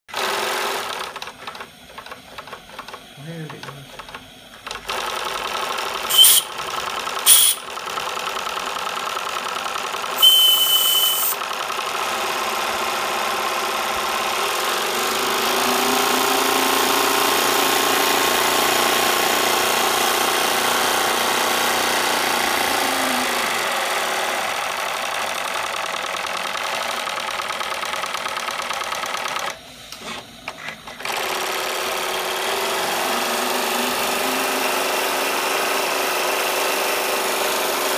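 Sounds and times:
model steam engine clattering: 0:00.5 - 0:12.8
hissing burst with high tone: 0:06.1 - 0:06.5, 0:07.3 - 0:07.6, 0:10.2 - 0:11.4.

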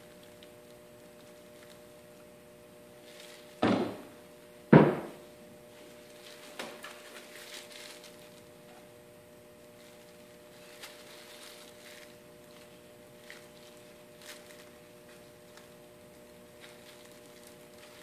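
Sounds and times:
wooden knocks: 0:04.7 - 0:05.2.

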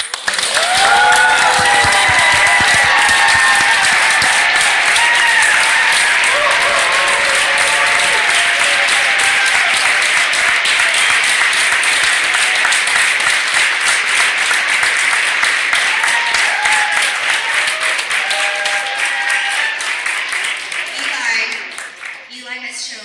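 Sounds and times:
children applauding: 0:00.0 - 0:22.3.

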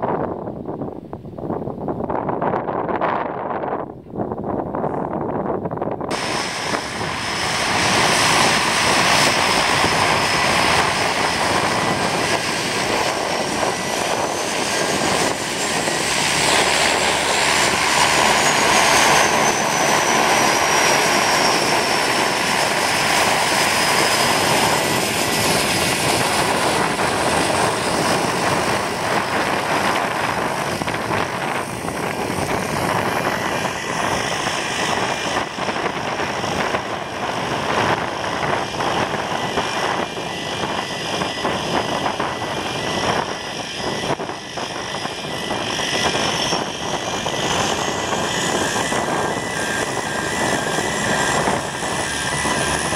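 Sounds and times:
turboprop aircraft taxiing: 0:00.0 - 0:52.9.

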